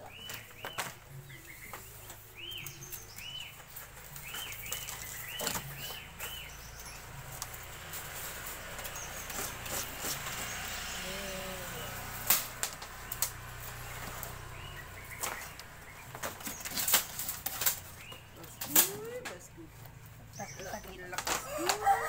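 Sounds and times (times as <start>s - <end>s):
small bird chirping: 0.0s - 7.8s.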